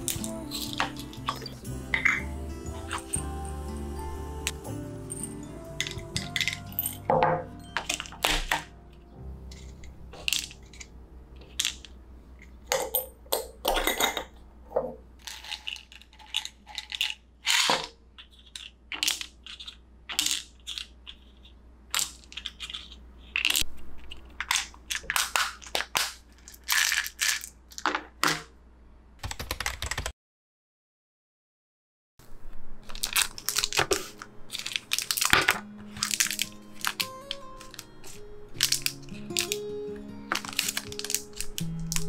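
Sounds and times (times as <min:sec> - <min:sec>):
pill bottles handled on wooden table: 0:15.2 - 0:23.6, 0:40.3 - 0:42.0
tablets dropping into plastic organizer: 0:33.0 - 0:39.6, 0:40.3 - 0:42.0.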